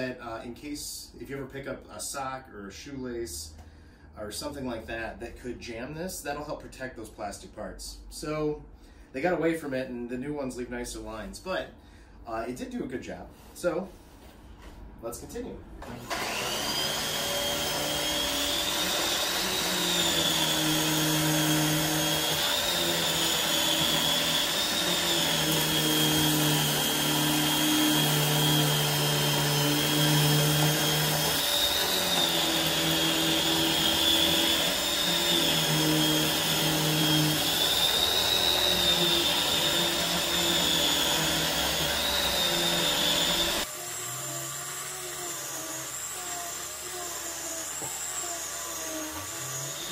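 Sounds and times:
vacuum cleaner on rug: 15.8 - 21.1, 21.7 - 43.7.

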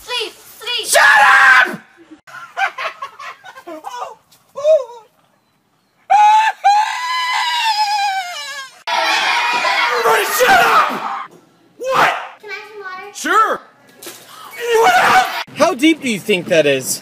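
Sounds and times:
people shouting: 8.9 - 12.4, 14.6 - 15.5.

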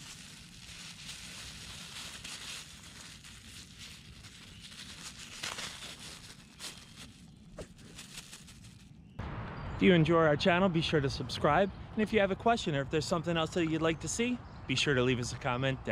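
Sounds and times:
plastic bag crinkling: 0.0 - 9.0.

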